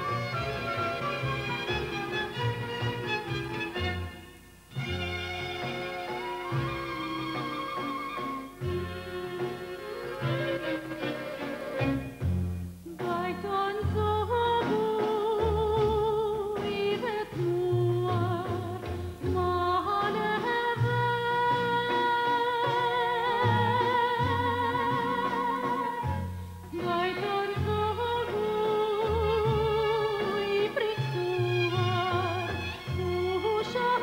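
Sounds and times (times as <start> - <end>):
instrumental accompaniment: 0.0 - 34.0
woman singing soprano: 12.9 - 34.0.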